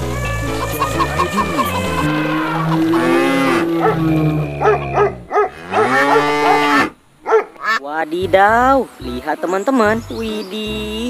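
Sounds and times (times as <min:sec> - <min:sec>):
cattle mooing: 0:00.0 - 0:07.8.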